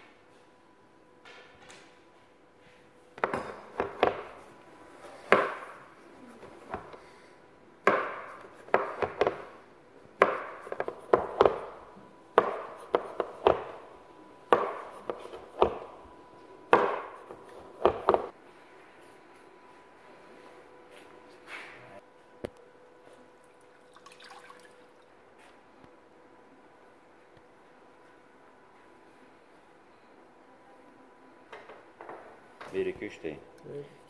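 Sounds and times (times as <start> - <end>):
knife chopping on worktop: 5.3 - 5.8, 7.8 - 9.5, 10.2 - 13.8, 14.5 - 16.0, 16.7 - 18.3.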